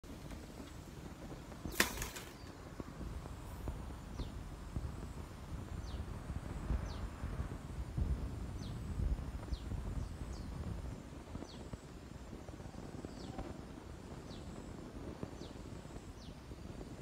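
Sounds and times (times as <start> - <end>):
wire hangers clinking: 1.7 - 2.5.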